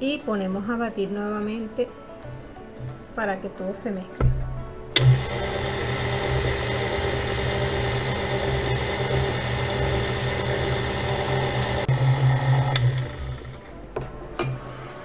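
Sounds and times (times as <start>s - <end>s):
stand mixer beating batter: 5.0s - 13.7s.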